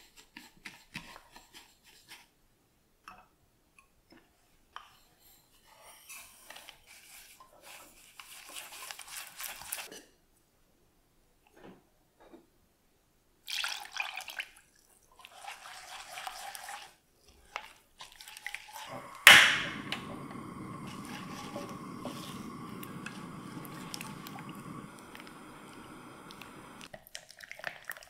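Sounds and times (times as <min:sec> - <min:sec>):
milk pouring into saucepan: 0:13.5 - 0:17.0, 0:17.6 - 0:28.0
spatula stirring liquid sloshing: 0:13.5 - 0:19.2, 0:20.3 - 0:28.0
sharp knock: 0:19.3 - 0:20.0.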